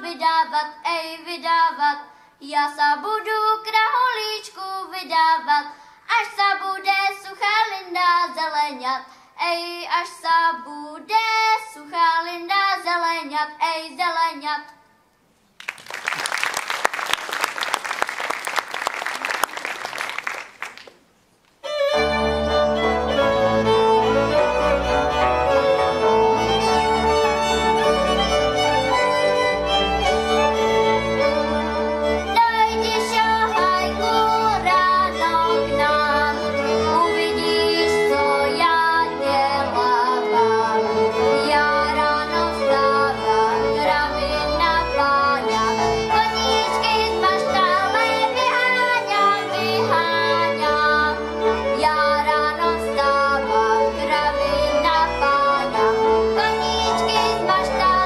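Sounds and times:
applause: 15.6s - 21.1s
fiddle: 21.6s - 58.0s.

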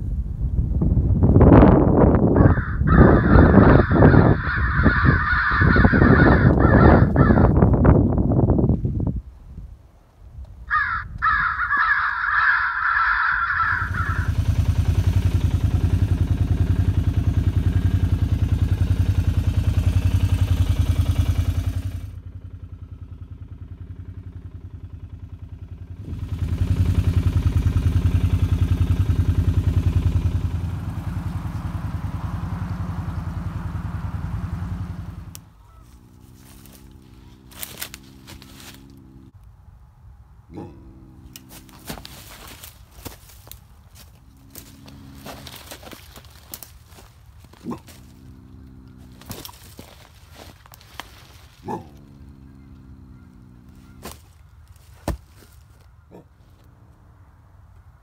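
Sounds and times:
crow cawing: 2.4s - 7.6s, 10.7s - 14.6s, 35.5s - 38.8s, 51.7s - 54.6s.

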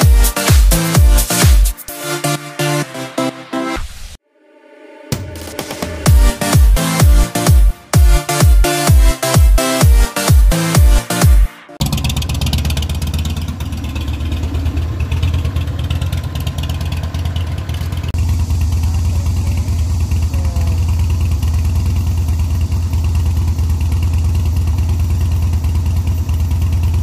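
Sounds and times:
motorcycle engine throbbing: 0.0s - 2.6s, 5.1s - 27.0s
motorcycle idling: 11.2s - 27.0s.

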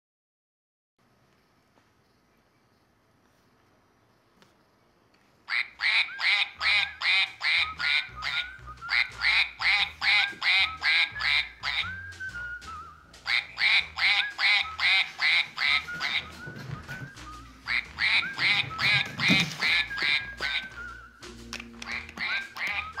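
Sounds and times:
toy duck electronic quacking: 5.5s - 12.0s, 13.2s - 16.4s, 17.7s - 20.9s, 21.8s - 23.0s.

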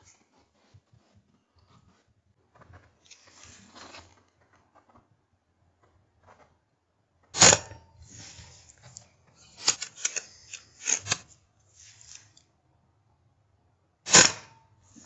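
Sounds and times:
small clicks and knocks: 2.5s - 5.2s
air rifle firing: 7.4s - 7.8s, 14.1s - 14.6s.

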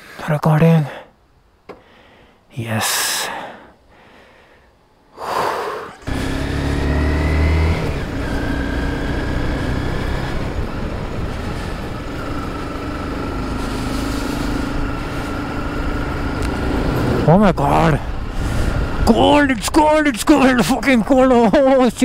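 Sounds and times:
motorcycle engine running: 5.9s - 20.0s
wind rush on microphone: 16.1s - 19.7s.

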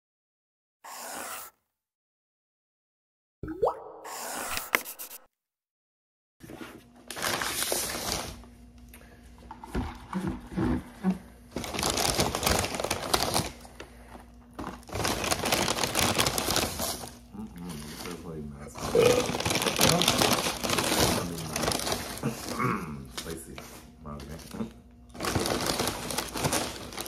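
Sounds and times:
paper bags crinkling: 7.0s - 8.4s, 11.5s - 27.0s.

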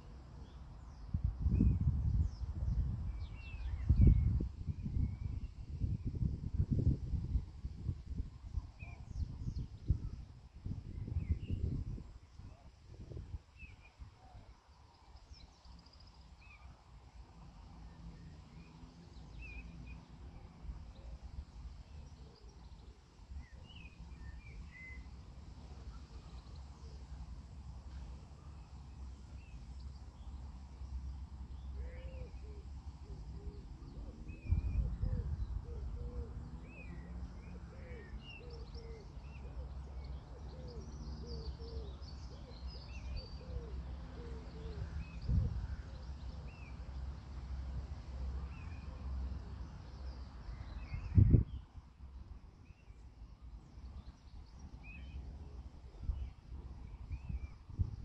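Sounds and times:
lower repeated bird calls: 31.5s - 47.0s.

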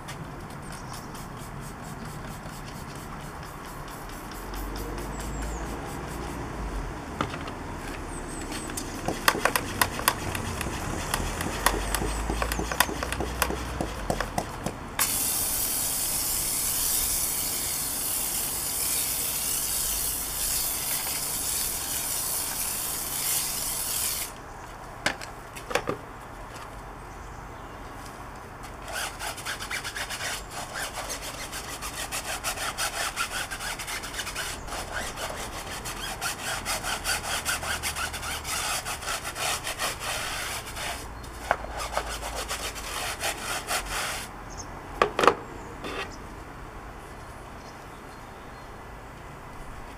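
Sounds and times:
brush scrubbing tyre: 0.5s - 6.8s, 8.3s - 24.4s, 28.6s - 44.4s
spray hissing: 1.0s - 6.5s, 15.0s - 24.4s
pump sprayer clicks: 8.6s - 14.4s.

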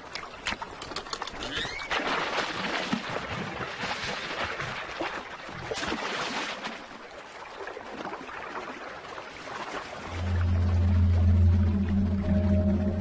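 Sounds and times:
elephants splashing in water: 0.7s - 10.2s.

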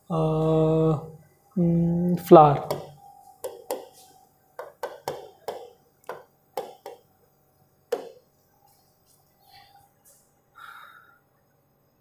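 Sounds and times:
fingertips tapping on glass: 2.7s - 4.0s, 4.6s - 7.0s, 7.9s - 8.2s.

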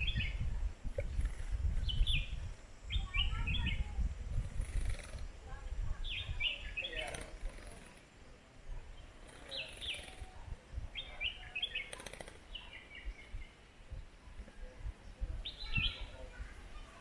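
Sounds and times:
birds chirping: 0.0s - 17.0s
wings fluttering: 1.0s - 8.3s, 9.0s - 10.5s, 11.5s - 13.3s.

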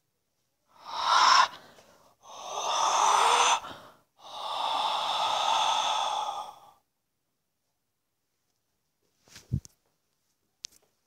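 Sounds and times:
person breathing loudly: 0.7s - 6.9s.

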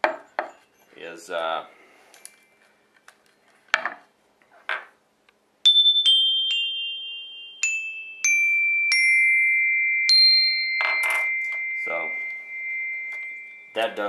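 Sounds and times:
xylophone notes ringing: 5.7s - 14.0s.

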